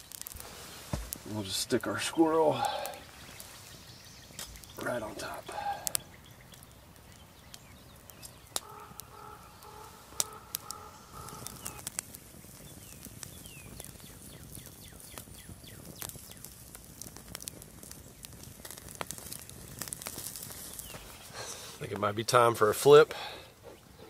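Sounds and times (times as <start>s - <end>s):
birds calling: 0.0s - 16.5s, 20.5s - 21.9s, 23.1s - 24.0s
campfire coals crackling: 0.0s - 24.0s.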